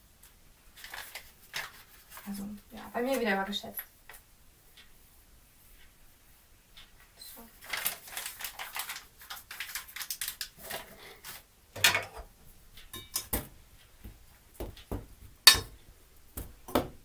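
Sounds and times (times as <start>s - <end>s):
metallic clink of mixing bowl: 12.9s - 13.3s, 15.5s - 15.8s.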